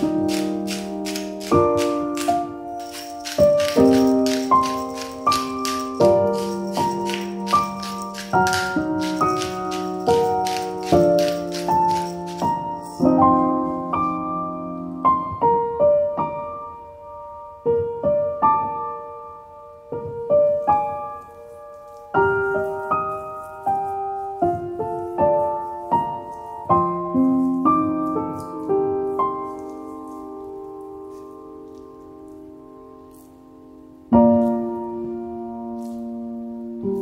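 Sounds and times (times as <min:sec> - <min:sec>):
pepper mill grinding: 0:00.0 - 0:13.4
slow solo piano music: 0:00.0 - 0:37.0.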